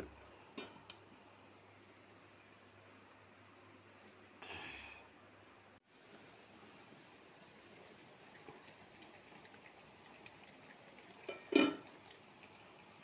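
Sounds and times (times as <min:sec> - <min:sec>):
vegetables simmering in a pan: 0:05.8 - 0:13.0.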